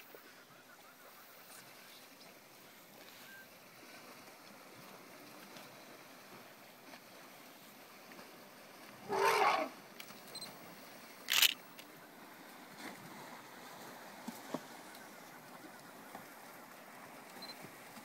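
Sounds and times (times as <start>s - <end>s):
elephant blowing through its trunk: 9.0s - 9.7s.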